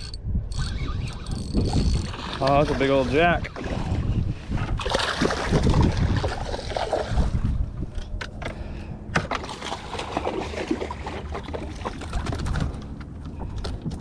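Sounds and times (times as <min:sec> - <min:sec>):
water splashing: 0:02.0 - 0:04.1, 0:04.8 - 0:07.4, 0:09.3 - 0:12.7.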